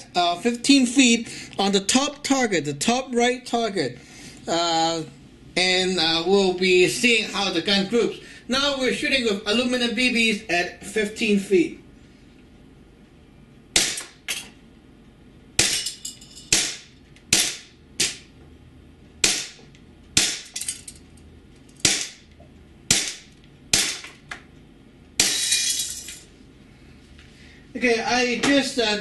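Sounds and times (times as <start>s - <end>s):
airsoft pistol shots: 13.7s - 14.2s, 16.5s - 18.3s, 19.2s - 19.6s, 22.9s - 24.0s.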